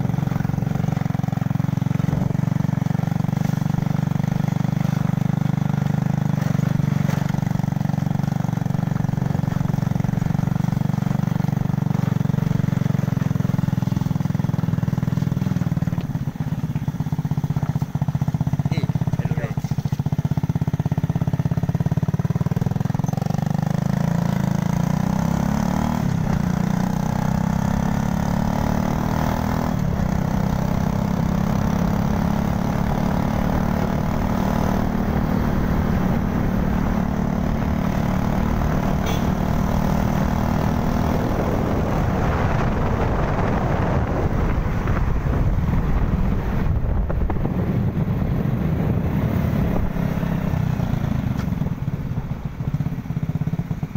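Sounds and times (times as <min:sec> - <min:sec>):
motorcycle engine running: 0:00.0 - 0:53.9
low riding rumble: 0:33.9 - 0:53.9.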